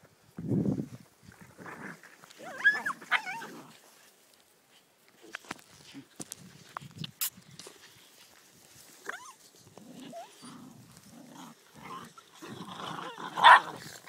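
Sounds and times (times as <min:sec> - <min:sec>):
puppies growling: 0:09.7 - 0:14.0.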